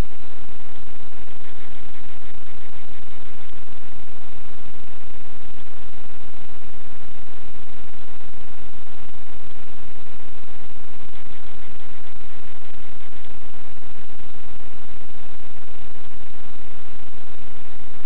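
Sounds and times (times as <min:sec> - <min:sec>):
recording noise hiss: 0:00.0 - 0:18.0.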